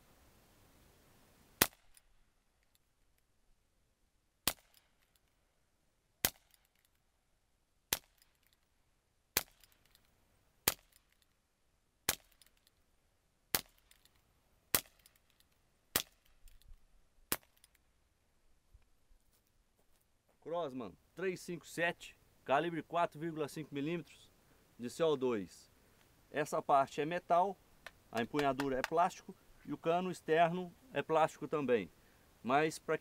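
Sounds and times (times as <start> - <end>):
air pistol shots: 1.6 - 2.0, 4.4 - 5.0, 6.2 - 6.7, 7.9 - 8.3, 14.7 - 15.2.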